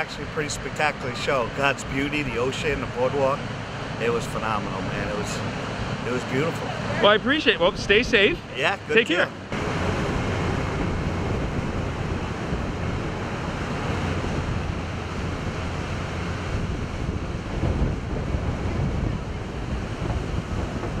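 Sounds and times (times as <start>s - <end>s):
diesel engine rumble: 0.0s - 21.0s
ocean surf: 0.0s - 21.0s
wind on microphone: 9.4s - 21.0s.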